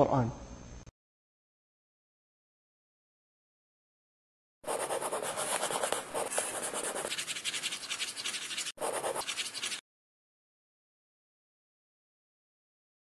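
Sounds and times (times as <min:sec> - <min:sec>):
marker scribbling on paper: 0:04.7 - 0:09.8.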